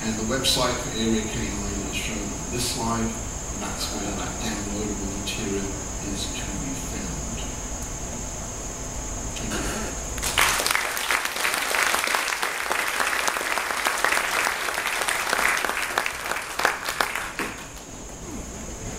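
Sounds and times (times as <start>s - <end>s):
audience applauding: 10.2s - 17.9s.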